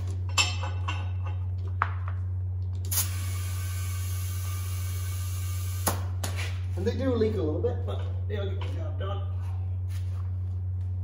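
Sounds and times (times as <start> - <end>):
steady low hum: 0.0 - 11.0
compressed air hissing: 2.9 - 5.9.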